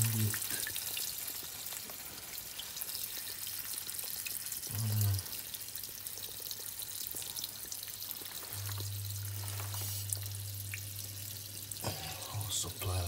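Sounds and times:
water hissing and dripping from pipe: 0.0 - 13.0
steady low hum: 8.5 - 13.0.

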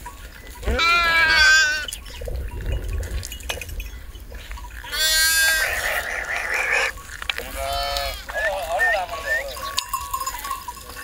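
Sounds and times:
sheep bleating: 0.6 - 1.9, 4.9 - 9.8.

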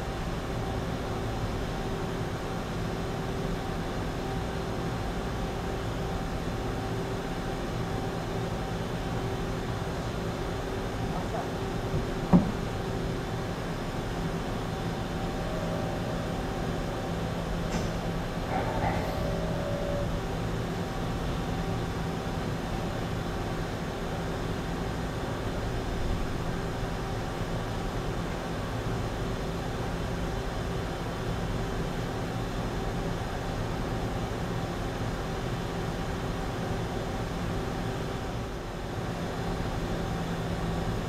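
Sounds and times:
short higher tone: 14.9 - 20.3.

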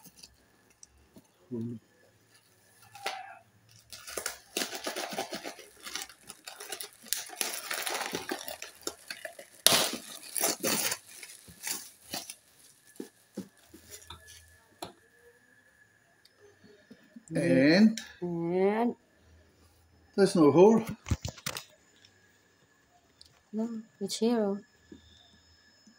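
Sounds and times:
plastic wrapping crinkling: 2.3 - 14.9.

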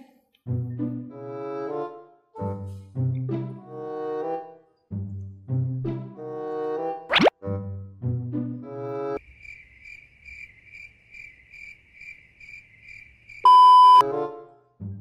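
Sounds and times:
cricket chirping sound effect: 9.2 - 13.5
loud single-tone beep: 13.5 - 14.0.

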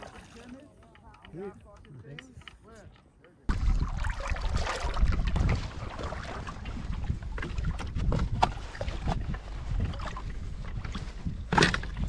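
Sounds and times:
small splashes: 0.0 - 0.6, 3.5 - 9.2
small waves lapping and splashing: 0.0 - 0.8, 3.5 - 12.0
wind rumbling on microphone: 3.5 - 12.0.

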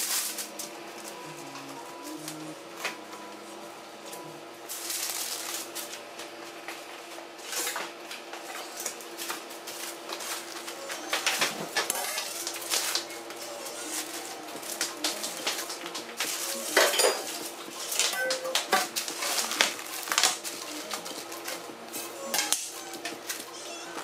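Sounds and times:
metal baking tray clattering: 16.3 - 18.1.

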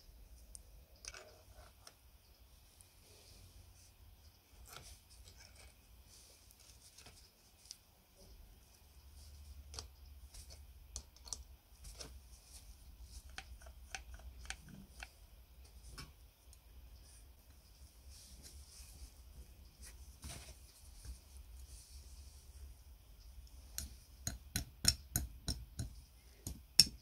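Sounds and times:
low steady hum: 0.0 - 27.0
metal parts clicking and tapping: 23.8 - 27.0.

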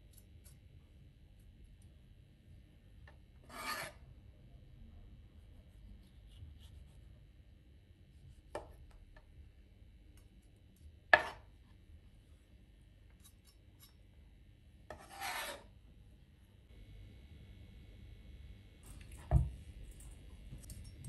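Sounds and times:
knife scraping across board: 3.4 - 4.0, 11.2 - 11.5, 14.9 - 15.7.

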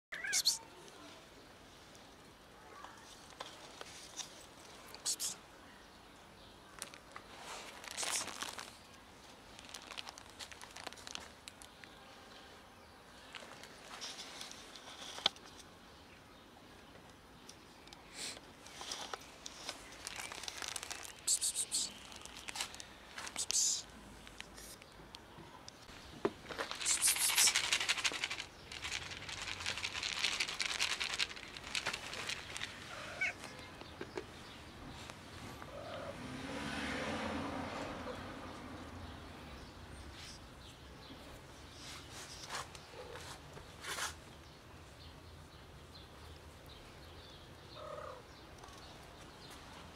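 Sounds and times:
cat meowing: 0.1 - 0.7, 32.9 - 33.6
crackling rustling handling noise: 2.8 - 5.0, 6.7 - 12.0, 13.2 - 15.8, 17.1 - 24.9, 25.9 - 35.6
plastic bag crinkling: 7.6 - 8.8, 9.5 - 11.7, 18.8 - 21.3, 26.5 - 33.4
kibble clicking on stone: 26.5 - 34.3.

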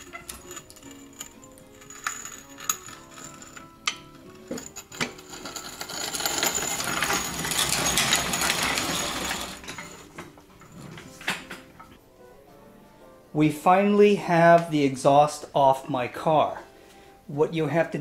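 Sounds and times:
metallic rattling and scraping: 0.0 - 12.0.

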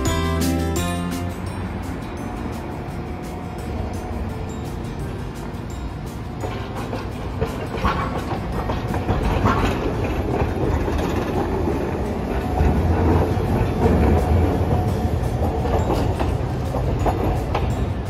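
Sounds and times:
tram wheels rumbling on rail: 0.0 - 18.0
sharp clacks of wheels: 6.4 - 18.0.

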